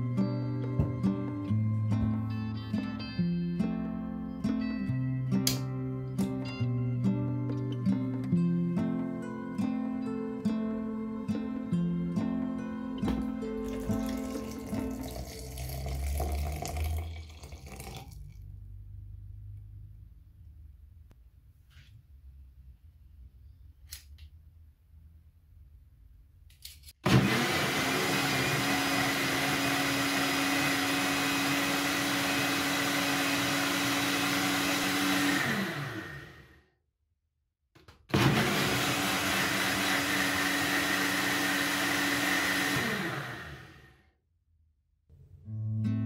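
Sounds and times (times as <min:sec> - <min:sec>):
blender motor running: 0:27.0 - 0:36.6, 0:38.1 - 0:44.0.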